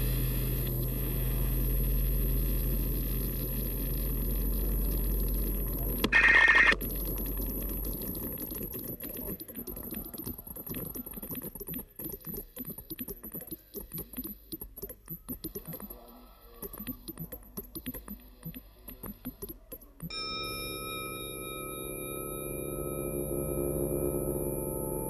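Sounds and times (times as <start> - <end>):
patter of small clicks and taps: 8.0 - 20.1.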